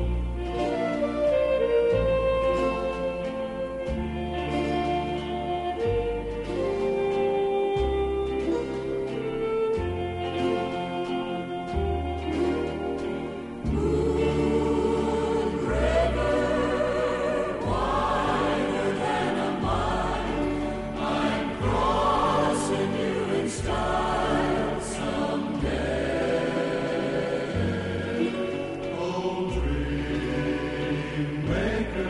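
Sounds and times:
bass line: 0:00.0 - 0:32.0
choir singing held chords: 0:12.3 - 0:32.0.

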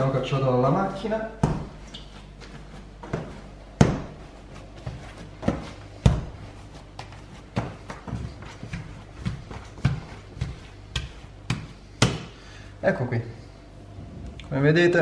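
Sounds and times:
dough thumping on countertop: 0:01.4 - 0:01.9, 0:03.0 - 0:12.4.

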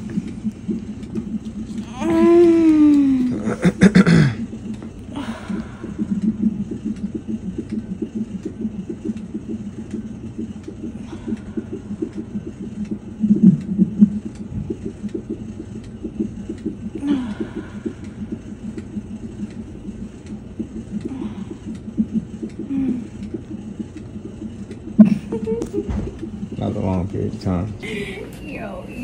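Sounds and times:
fast-pulsing low rumble: 0:00.0 - 0:27.9
woman moaning: 0:01.7 - 0:03.5, 0:17.0 - 0:17.8, 0:22.7 - 0:23.1.

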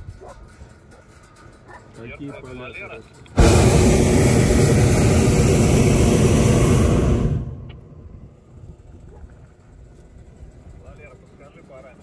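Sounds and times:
propane burner blast: 0:03.4 - 0:09.0.

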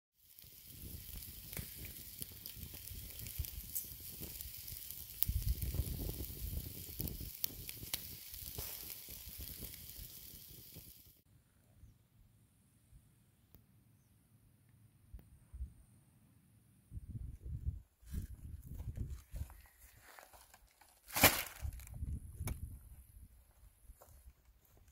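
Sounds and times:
bonfire crackling and hissing: 0:00.2 - 0:11.2
fire popping sharply: 0:00.2 - 0:11.2, 0:21.1 - 0:22.6.

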